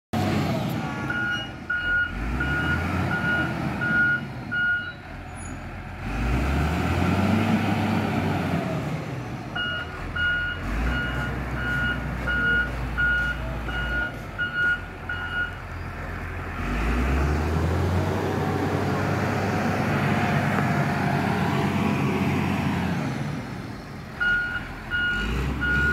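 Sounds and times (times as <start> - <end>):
diesel engine running: 0.2 - 25.9
reverse alarm beeping: 1.1 - 5.0.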